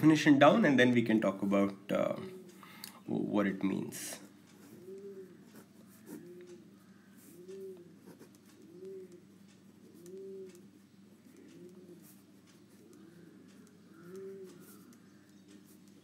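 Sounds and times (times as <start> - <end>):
bird cooing: 2.0 - 2.8, 4.6 - 15.8.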